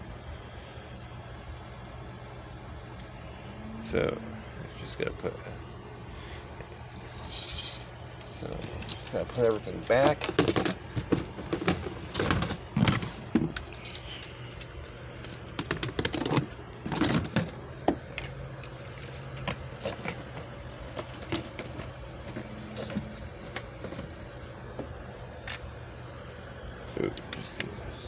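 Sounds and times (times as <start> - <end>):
low hum: 0.0 - 28.0
plastic and cardboard rustling: 7.1 - 17.6.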